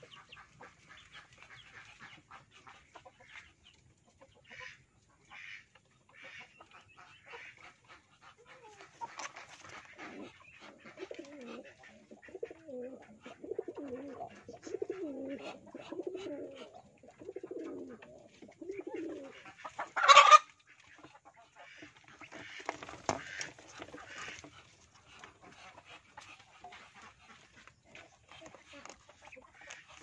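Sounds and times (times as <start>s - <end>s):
pigeons cooing: 8.6s - 20.2s.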